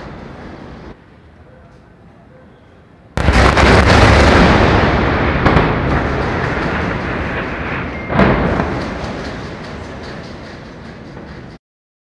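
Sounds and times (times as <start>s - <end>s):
bomb blast with rolling rumble: 3.2s - 11.5s
sharp cracks: 3.2s - 11.6s.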